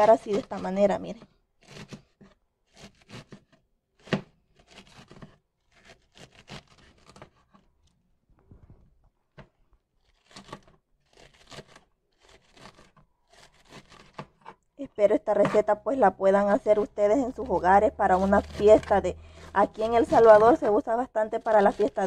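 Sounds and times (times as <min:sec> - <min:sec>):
knife slicing cabbage on board: 0:00.0 - 0:00.8, 0:01.6 - 0:07.6, 0:10.1 - 0:14.6, 0:15.4 - 0:15.7, 0:17.1 - 0:20.7, 0:21.4 - 0:22.0.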